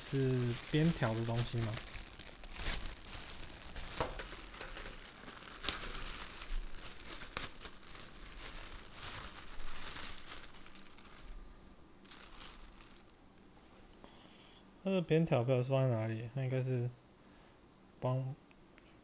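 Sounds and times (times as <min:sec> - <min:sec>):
packaging crinkling and rustling: 0:00.0 - 0:11.4, 0:12.0 - 0:13.2.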